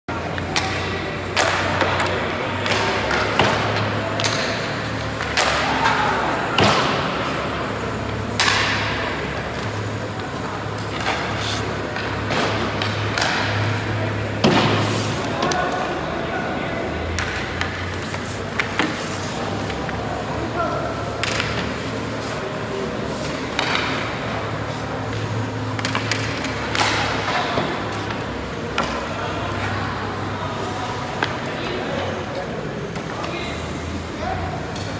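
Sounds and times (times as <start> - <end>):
skates scraping ice: 0.2 - 16.2, 17.1 - 34.1
hockey stick cracking on puck: 0.3 - 6.0, 8.3 - 15.8, 17.1 - 20.0, 21.0 - 22.3, 23.2 - 24.4, 25.1 - 29.8
puck thudding on pads and boards: 8.1 - 15.8, 17.1 - 20.0, 21.0 - 22.3, 23.2 - 29.9.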